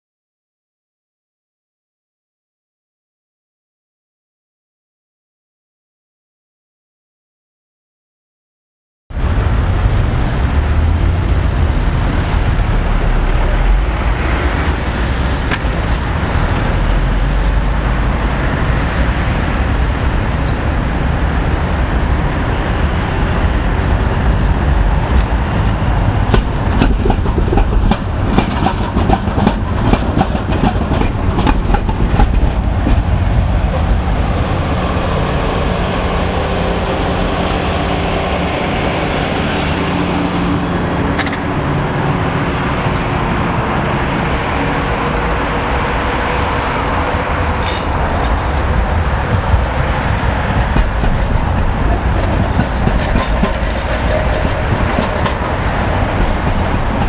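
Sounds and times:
tram rumbling: 9.1s - 57.0s.

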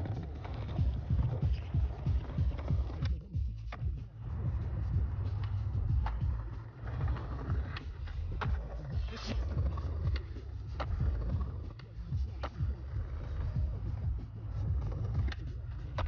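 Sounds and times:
skateboard clacks: 0.0s - 16.0s
skateboard wheels rolling on concrete: 0.0s - 16.0s.

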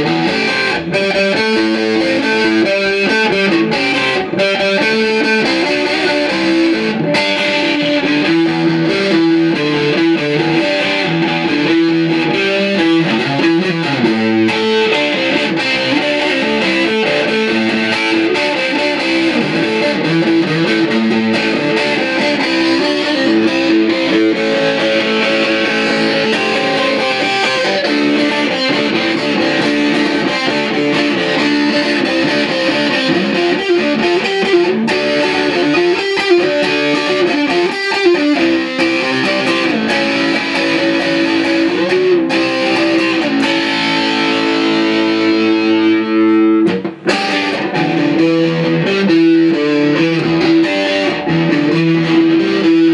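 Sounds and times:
electric guitar through amp: 0.0s - 52.9s.

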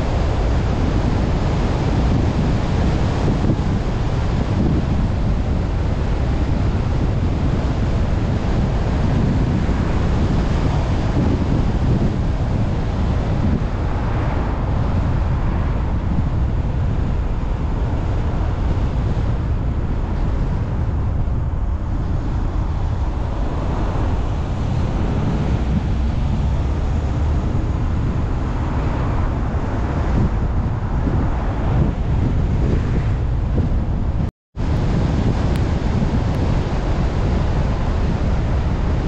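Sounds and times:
car wind and road noise: 0.0s - 39.0s
wind buffeting microphone: 0.0s - 39.0s.

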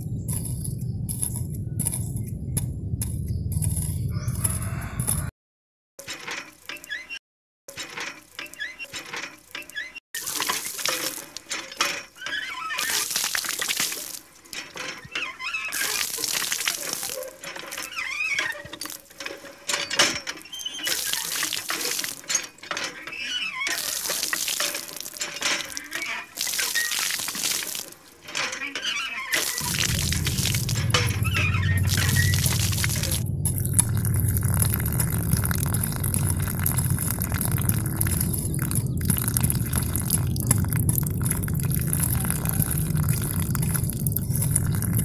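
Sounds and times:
water pouring and splashing: 10.2s - 45.0s.

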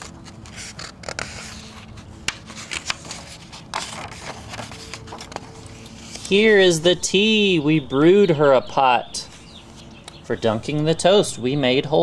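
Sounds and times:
book pages turning: 0.0s - 6.6s.

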